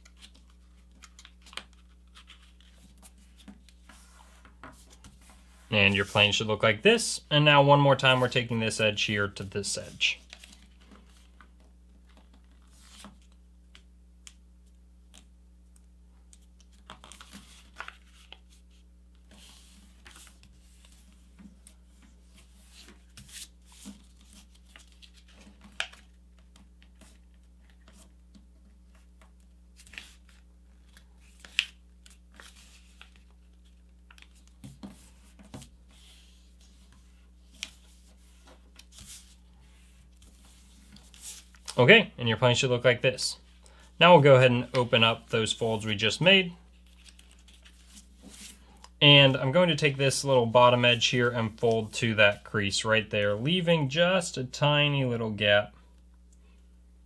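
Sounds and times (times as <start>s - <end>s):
paper being folded and creased: 0.0s - 6.4s, 10.2s - 13.8s, 16.3s - 28.2s, 28.9s - 41.8s, 46.7s - 48.9s.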